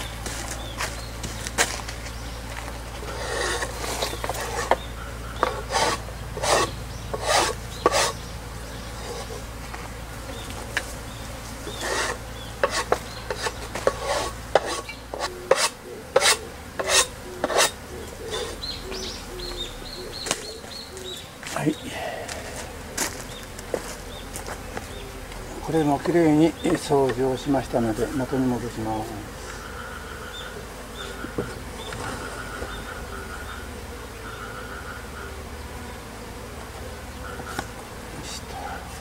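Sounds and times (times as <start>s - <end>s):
scraper scraping wood board: 3.0s - 8.2s, 8.9s - 9.6s, 11.6s - 18.6s.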